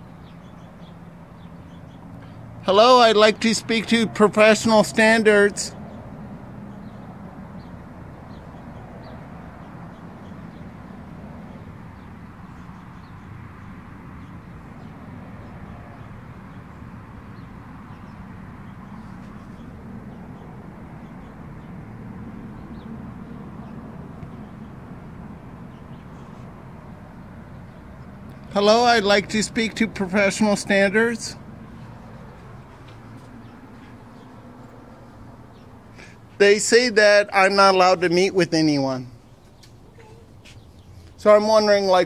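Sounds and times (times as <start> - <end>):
low outdoor background noise: 0.0 - 42.0.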